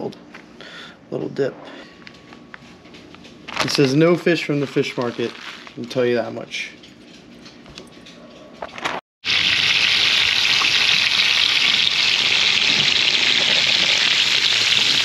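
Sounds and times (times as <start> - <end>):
fish sizzling in hot oil: 9.3 - 15.0.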